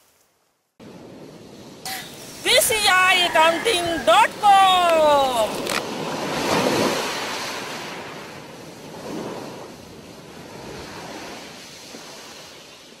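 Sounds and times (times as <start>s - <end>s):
shallow surf washing over sand: 0.8s - 13.0s.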